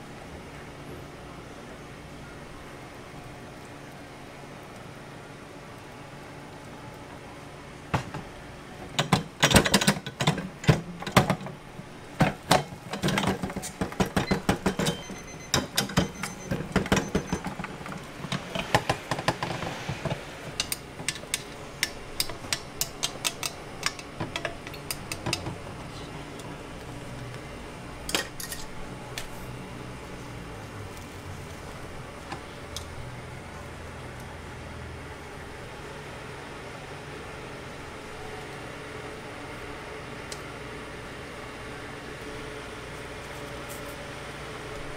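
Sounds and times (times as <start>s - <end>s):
waffle iron clanking: 12.2s - 25.6s.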